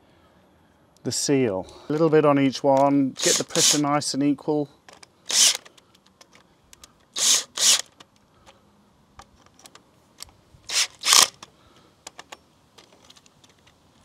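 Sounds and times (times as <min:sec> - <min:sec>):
ratchet clicking: 0:05.3 - 0:05.7.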